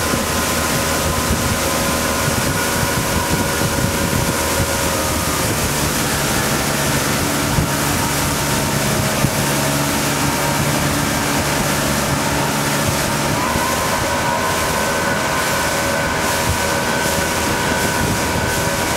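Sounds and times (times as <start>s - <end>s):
boat engine running: 0.0s - 18.9s
water rushing past hull: 0.0s - 18.9s
wind buffeting microphone: 0.0s - 18.9s.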